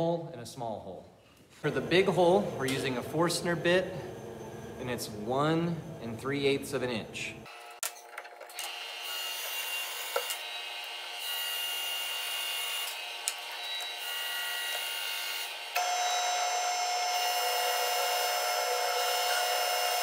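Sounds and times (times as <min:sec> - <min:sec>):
drill press humming: 0:08.5 - 0:20.0
drill bit boring into wood: 0:08.6 - 0:20.0.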